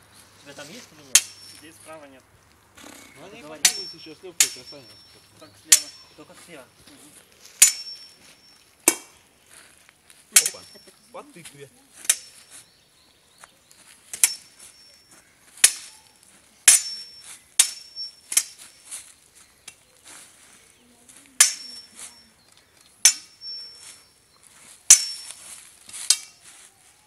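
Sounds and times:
steel swords clashing: 1.1 - 1.7, 3.5 - 6.3, 7.6 - 9.1, 10.4 - 10.9, 12.0 - 12.5, 14.1 - 14.9, 15.6 - 16.0, 16.6 - 18.9, 21.4 - 22.2, 23.0 - 24.2, 24.9 - 26.4.

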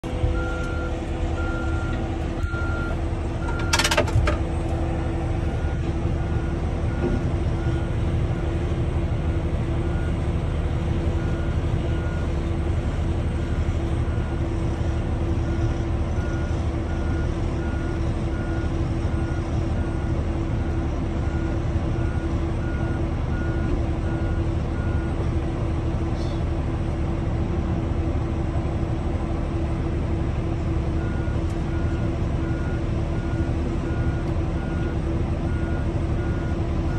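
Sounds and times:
excavator diesel engine rumbling: 0.0 - 36.9
travel alarm beeping: 0.3 - 4.1.

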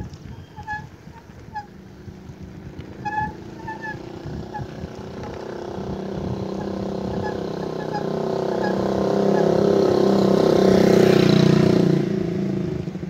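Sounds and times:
wind rumble on microphone: 0.0 - 7.6
motorcycle engine approaching: 0.0 - 13.0.

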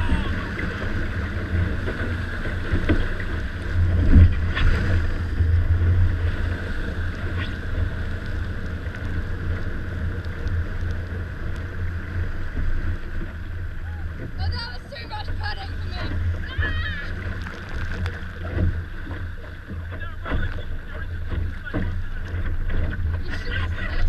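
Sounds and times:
water rushing along hull: 0.0 - 24.0
wind buffeting microphone: 0.0 - 24.0.

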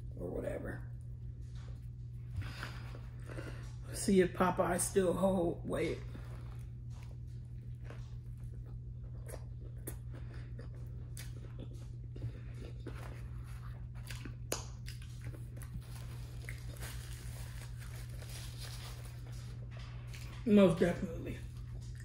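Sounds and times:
steady low hum: 0.0 - 22.0
close chewing with mouth clicks: 6.1 - 20.4.

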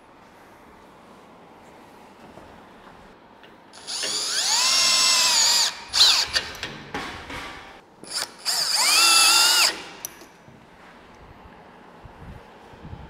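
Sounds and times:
cordless drill whining: 3.8 - 6.5, 8.1 - 10.0.

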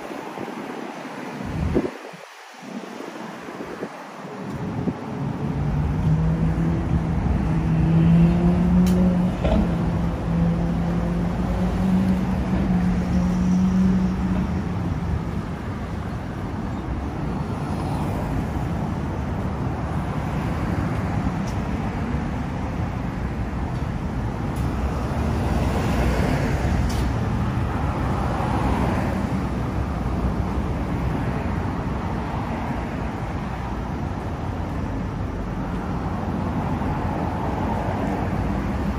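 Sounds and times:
cars driving past: 0.0 - 38.9
car passing loudly: 5.2 - 15.3.

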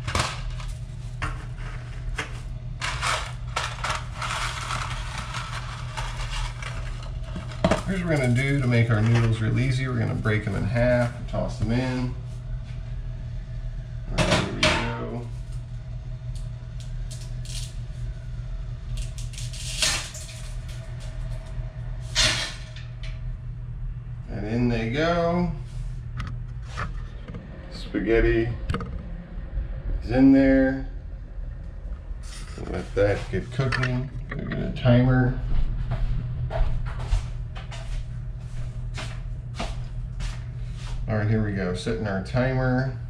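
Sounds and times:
steady low hum: 0.0 - 43.0
pasta sticks scraping cardboard box: 2.9 - 7.2.

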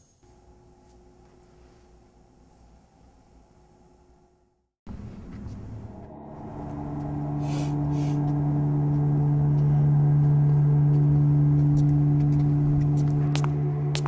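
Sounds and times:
low droning hum: 0.2 - 14.0
fainter higher tone: 5.4 - 14.0.

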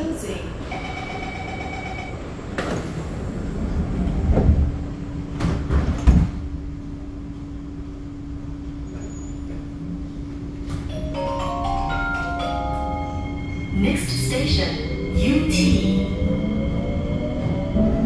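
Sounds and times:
train doors closing with thuds: 4.0 - 6.6.

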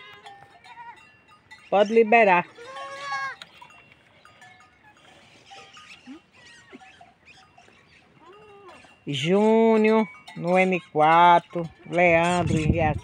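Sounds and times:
goats bleating: 2.4 - 3.6.

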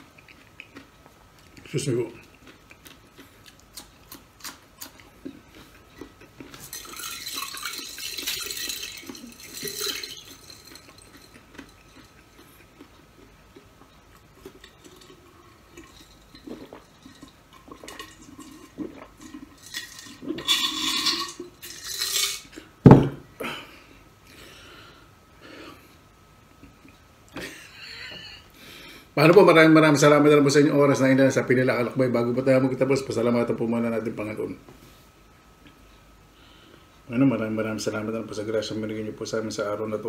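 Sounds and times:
sipping and swallowing: 5.3 - 20.5
glass mug knocking on table: 22.9 - 23.2.

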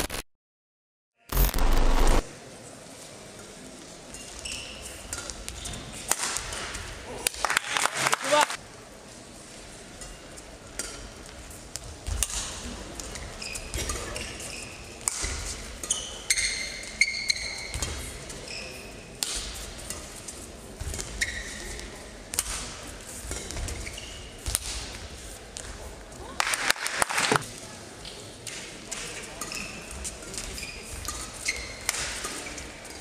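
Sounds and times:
shoes squeaking on court: 21.0 - 21.8, 23.6 - 24.4.

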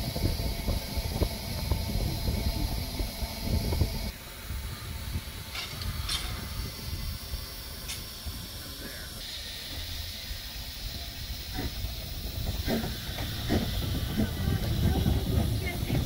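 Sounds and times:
steam locomotive hissing: 0.0 - 16.0
short sharp steam hisses: 4.7 - 15.7.

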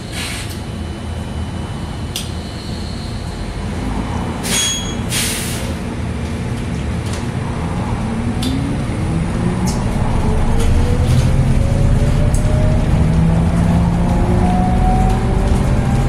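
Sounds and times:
bus road rumble: 0.0 - 16.0
electric motor whine rising: 8.9 - 15.5.

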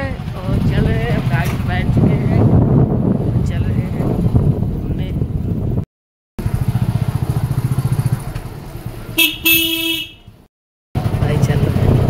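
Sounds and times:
motorcycle engine running: 0.0 - 5.8, 6.4 - 12.0
motorcycle horn honking: 9.2 - 10.4.

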